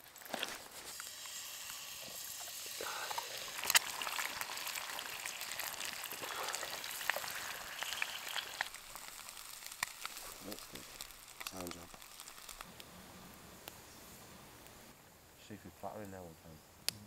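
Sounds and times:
eggs sizzling in a skillet: 0.0 - 14.9
fat popping: 2.0 - 12.8.

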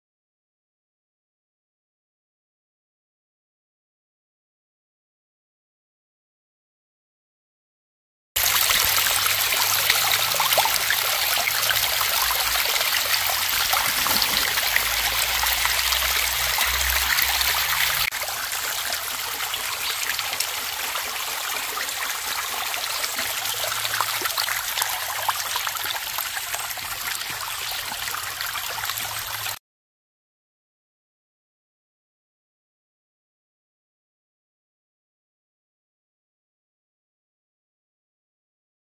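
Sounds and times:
stream trickling over rocks: 8.4 - 29.6.

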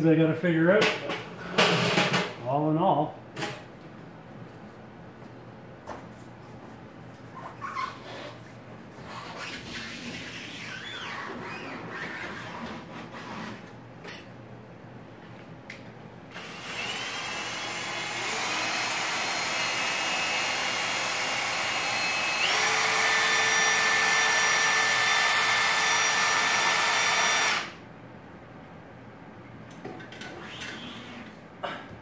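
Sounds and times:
drill and winch gears whining: 16.3 - 27.8.

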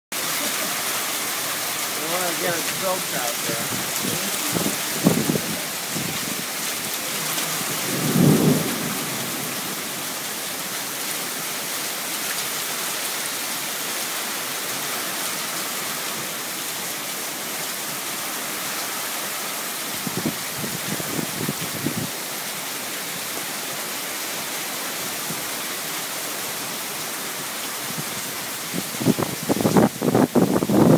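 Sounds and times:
heavy rain pouring: 0.1 - 30.9
low thunder rumbles: 2.6 - 10.2.

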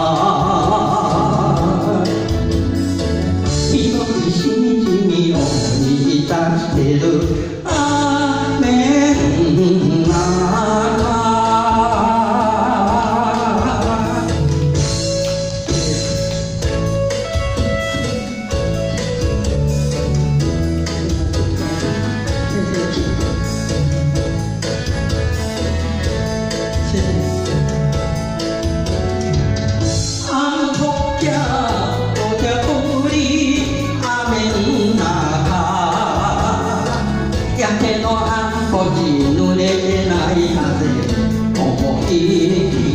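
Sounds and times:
person singing into a microphone: 0.0 - 18.8, 28.8 - 42.9
backing music: 0.0 - 42.9.

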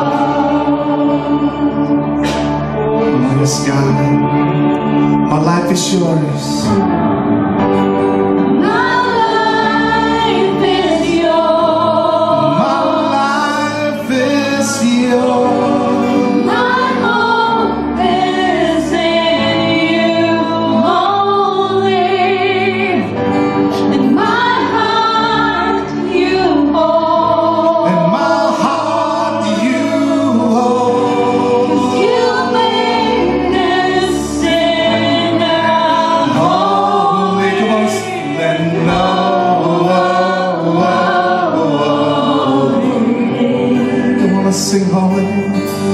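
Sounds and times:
bass line: 0.0 - 45.9
electric guitar: 0.0 - 45.9
singers singing together: 0.0 - 45.9.

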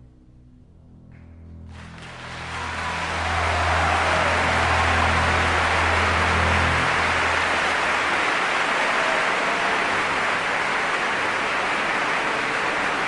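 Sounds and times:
low hum: 0.0 - 8.4.

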